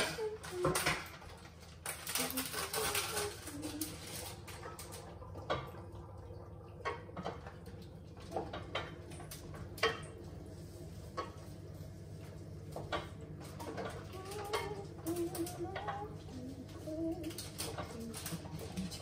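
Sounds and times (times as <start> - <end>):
utensils and pans clattering on pots: 0.0 - 5.7, 8.2 - 10.2, 12.8 - 19.0
steady low hum: 0.0 - 19.0.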